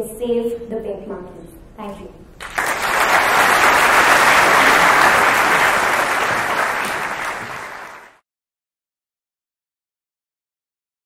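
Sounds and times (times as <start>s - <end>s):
large audience applauding: 2.4s - 8.2s.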